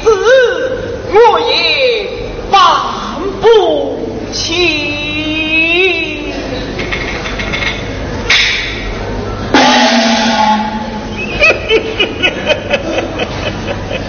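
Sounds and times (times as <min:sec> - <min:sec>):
gong crash: 0:09.5 - 0:11.2
ringing gong stroke: 0:09.5 - 0:11.2
sharp drum strokes: 0:09.5 - 0:11.2.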